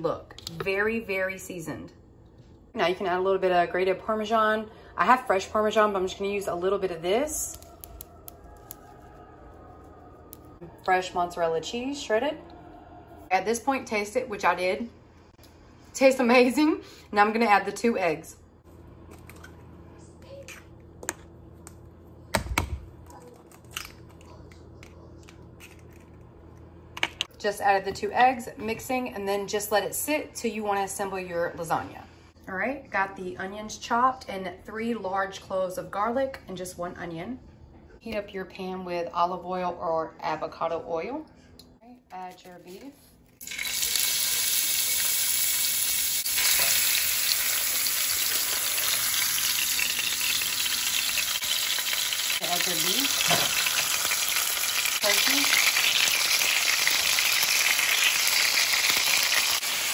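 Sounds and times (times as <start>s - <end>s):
eggs cracking on a bowl: 7.4s - 8.9s
meat sizzling in frying pan: 43.4s - 59.9s.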